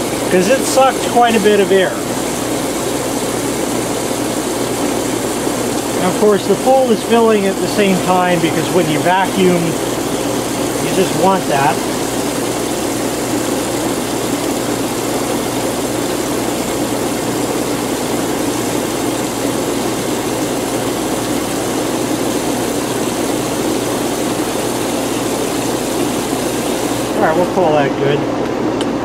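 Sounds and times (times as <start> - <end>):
hose water splashing into pot: 0.0 - 27.9.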